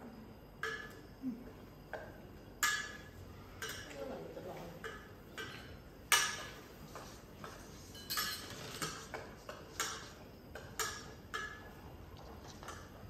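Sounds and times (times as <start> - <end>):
metal utensil clinking in pot: 7.9 - 9.2.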